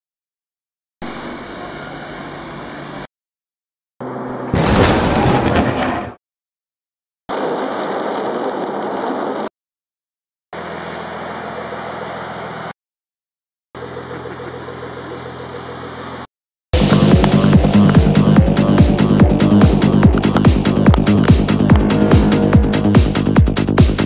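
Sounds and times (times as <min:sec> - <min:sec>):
car engine idling: 0:16.8 - 0:23.9
electronic music: 0:16.8 - 0:24.0.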